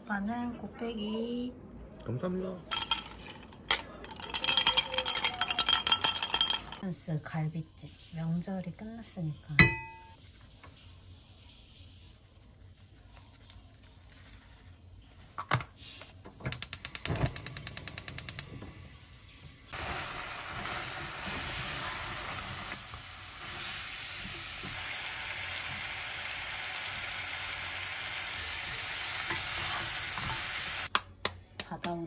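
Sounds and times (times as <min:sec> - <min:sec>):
meat sizzling in a pot: 0:19.6 - 0:30.9.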